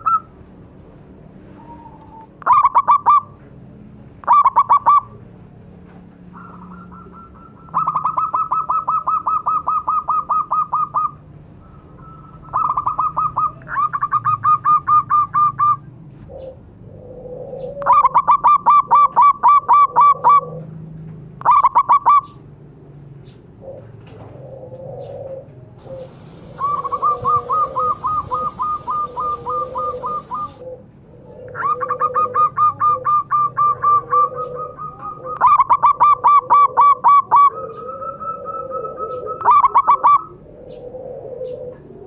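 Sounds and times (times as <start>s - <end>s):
softer lower cooing: 16.3s - 18.2s, 23.6s - 42.0s
doves rapid cooing: 23.6s - 42.0s.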